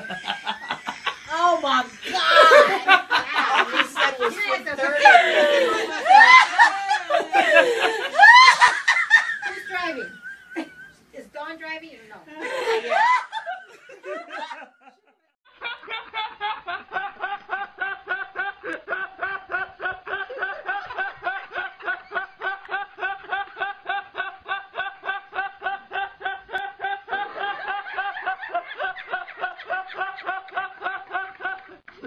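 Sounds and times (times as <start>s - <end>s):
man laughing uncontrollably: 2.1s - 9.4s, 15.6s - 31.9s.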